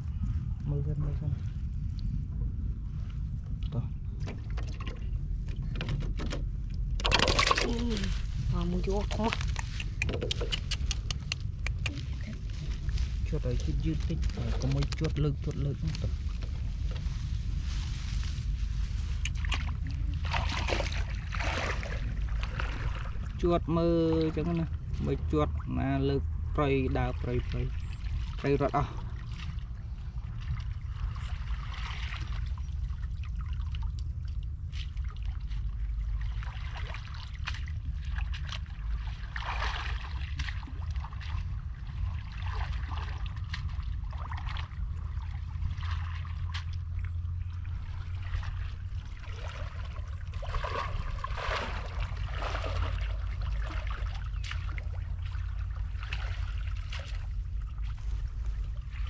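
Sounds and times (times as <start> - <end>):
low rumble: 0.0 - 59.0
small splashes and clicks: 6.6 - 8.1, 9.0 - 12.4, 13.8 - 17.1, 19.1 - 23.2, 31.6 - 59.0
shallow water trickling: 10.7 - 59.0.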